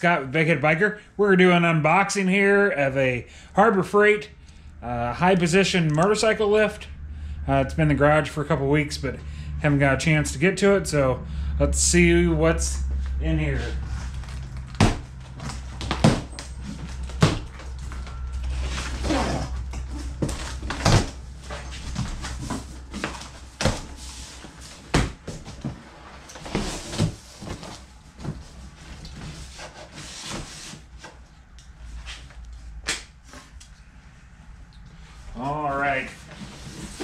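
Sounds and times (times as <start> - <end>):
cardboard scraping and rustling: 13.5 - 31.2, 36.0 - 37.0
cardboard flaps knocking: 14.8 - 15.1.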